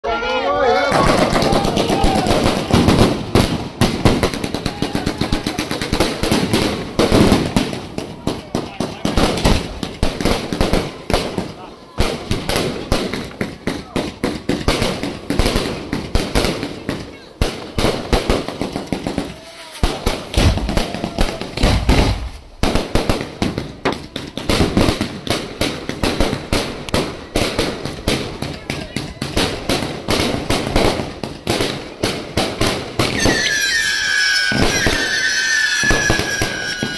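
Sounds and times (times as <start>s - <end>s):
firework crackle: 0.7s - 36.9s
firework shells bursting: 0.9s - 36.9s
firework launch pops: 17.8s - 27.1s.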